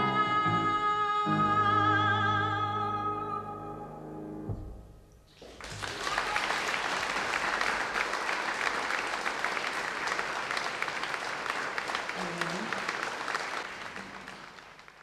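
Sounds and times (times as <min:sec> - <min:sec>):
person singing: 0:00.0 - 0:04.0
piano: 0:00.0 - 0:05.6
audience applauding: 0:05.4 - 0:15.0.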